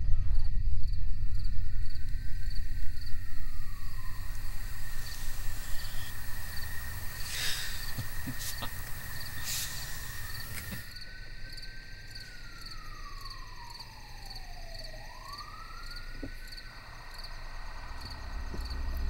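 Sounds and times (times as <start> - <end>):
crickets chirping: 0.0 - 19.0
police siren wailing: 12.4 - 16.3.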